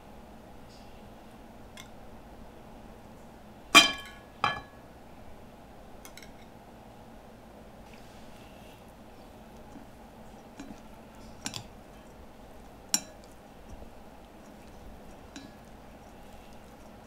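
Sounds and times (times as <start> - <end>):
low room hum: 0.0 - 17.0
kitchenware clinks and taps: 3.8 - 4.8.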